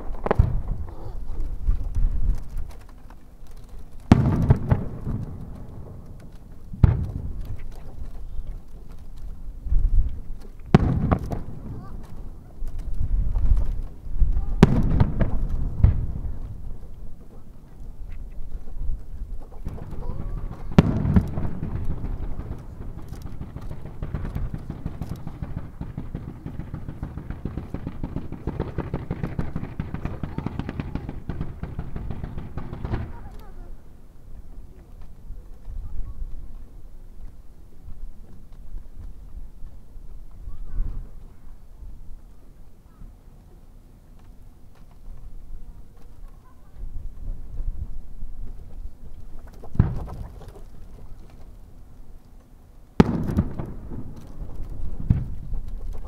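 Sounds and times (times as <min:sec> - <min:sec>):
fireworks booming with echo: 0:00.0 - 0:02.9, 0:03.9 - 0:18.1, 0:19.3 - 0:34.0, 0:49.7 - 0:50.8, 0:53.0 - 0:56.0.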